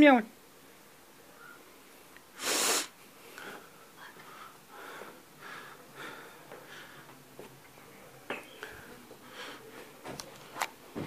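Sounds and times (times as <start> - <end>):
soft breathy sounds: 0.7 - 10.6
sharp burst of breath: 2.3 - 3.6.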